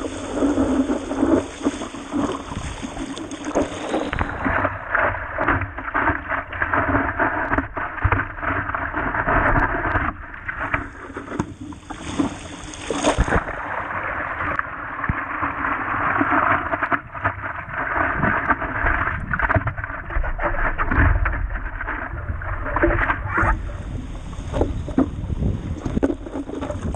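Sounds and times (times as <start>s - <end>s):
paddle strokes in water: 0.0s - 26.9s
water splashing against board: 0.0s - 26.9s.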